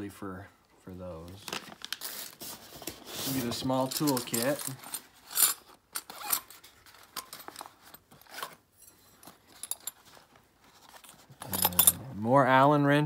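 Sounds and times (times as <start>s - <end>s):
zipper rasps: 6.0s - 6.6s.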